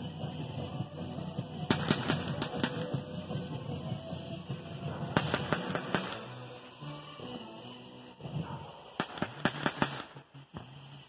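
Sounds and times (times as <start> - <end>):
fireworks banging: 0.0 - 11.0
music playing: 0.0 - 11.0.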